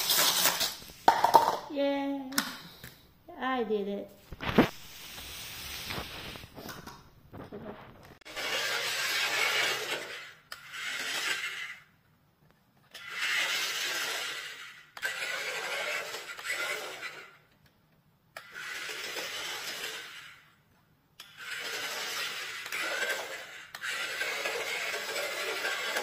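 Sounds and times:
toy car wheels rolling on wood floor: 0:00.0 - 0:01.6, 0:04.4 - 0:11.9, 0:12.9 - 0:17.5, 0:18.4 - 0:20.6, 0:21.2 - 0:26.0.

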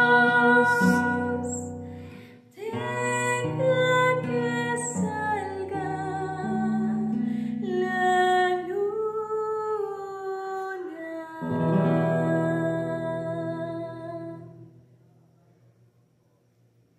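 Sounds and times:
woman singing: 0:00.0 - 0:01.8, 0:02.5 - 0:14.6
classical guitar playing: 0:00.0 - 0:08.8, 0:11.4 - 0:14.8.

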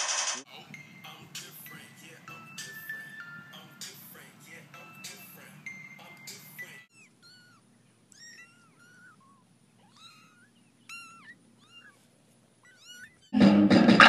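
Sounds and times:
kitten mewing: 0:06.9 - 0:12.0, 0:12.6 - 0:14.0
loud music: 0:13.4 - 0:14.0.

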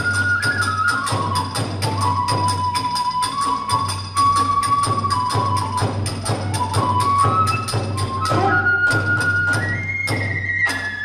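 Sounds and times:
bamboo flute melody: 0:00.0 - 0:11.0
drum beating: 0:00.0 - 0:11.0
small hand cymbals: 0:00.0 - 0:11.0.

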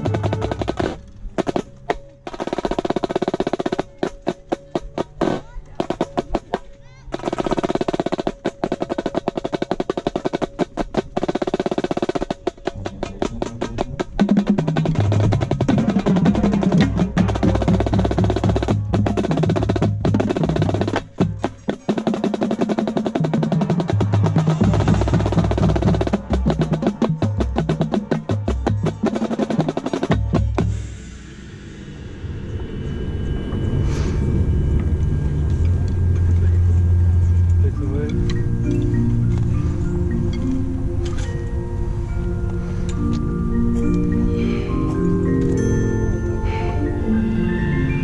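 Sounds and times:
marching snare drum rolls: 0:00.0 - 0:30.9
low ensemble notes: 0:00.0 - 0:48.0.

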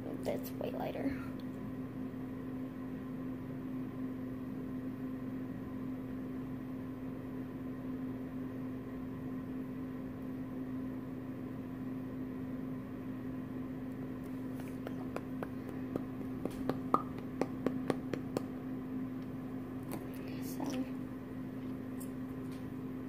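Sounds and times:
low constant hum: 0:00.0 - 0:23.0.

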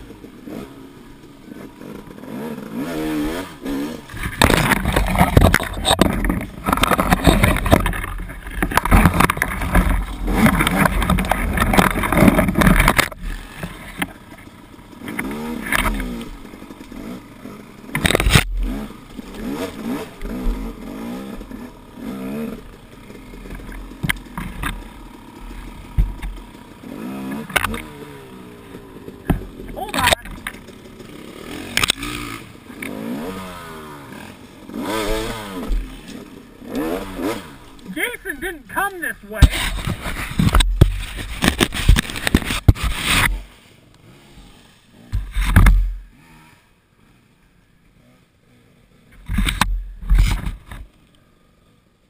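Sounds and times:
dirt bike engine revving: 0:00.0 - 0:50.8
brush scraping: 0:39.4 - 0:43.6.

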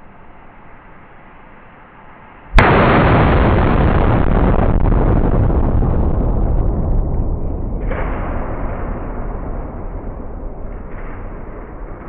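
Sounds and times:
explosion with rumbling tail: 0:02.6 - 0:12.0.

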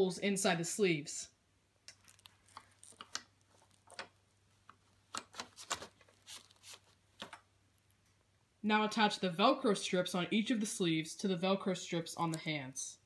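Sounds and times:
cloth rustling: 0:02.0 - 0:07.9.

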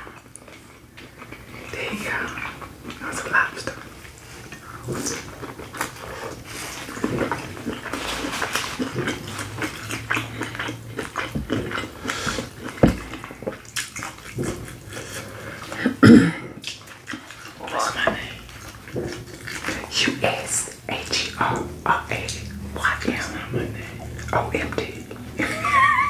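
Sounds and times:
wet chewing and lip-smacking: 0:00.0 - 0:15.9, 0:16.6 - 0:25.4.

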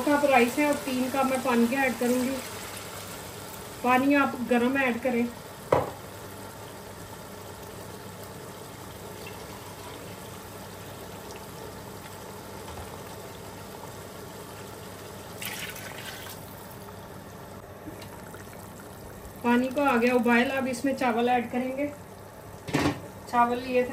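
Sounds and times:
water bubbling in pot: 0:06.5 - 0:23.2.

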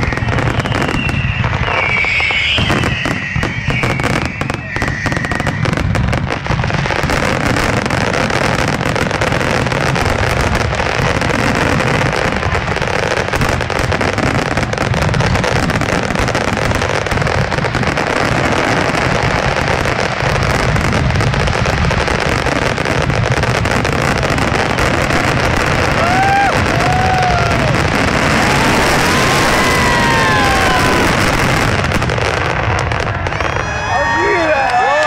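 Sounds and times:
fireworks bangs and crackles: 0:00.0 - 0:35.0.

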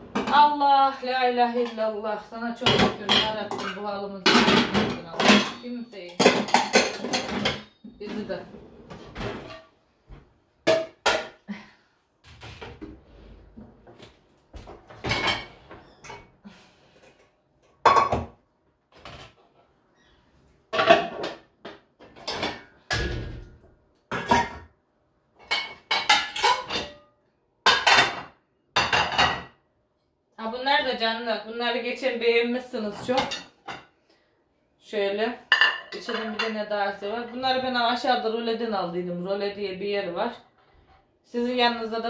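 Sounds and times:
ceramic plates and cups clinking: 0:02.6 - 0:08.3, 0:25.4 - 0:27.0, 0:35.5 - 0:36.6.

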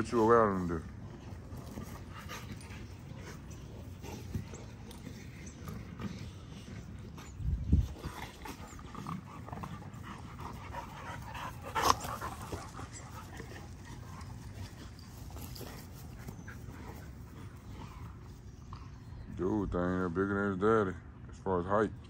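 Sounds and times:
dogs tussling: 0:00.0 - 0:18.8.

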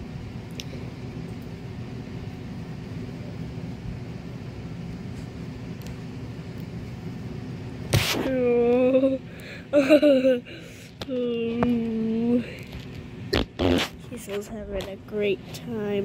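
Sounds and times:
person speaking: 0:14.1 - 0:16.0.

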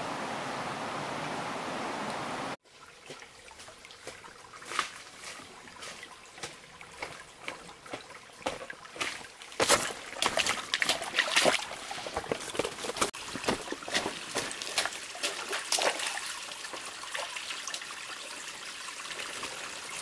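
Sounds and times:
stream trickling over rocks: 0:00.0 - 0:20.0
footsteps on leaves and stones: 0:04.0 - 0:15.7.

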